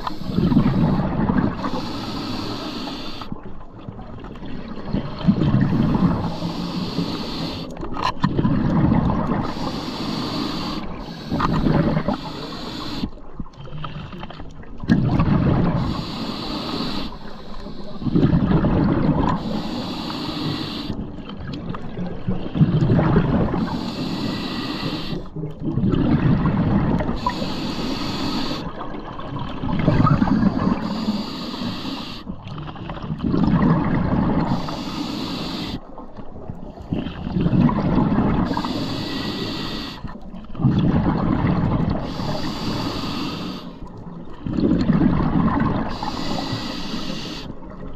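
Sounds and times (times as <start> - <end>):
regulator hiss on inhale: 0.0 - 3.4, 5.8 - 7.8, 9.4 - 13.2, 15.8 - 18.3, 19.4 - 21.0, 23.6 - 25.3, 27.1 - 28.8, 30.5 - 32.3, 34.4 - 35.9, 38.4 - 40.2, 42.0 - 43.9, 45.9 - 47.6
gurgling exhaust bubbles: 4.6 - 6.3, 21.6 - 23.6, 32.6 - 34.6, 36.9 - 38.6, 40.5 - 42.4, 44.4 - 46.2.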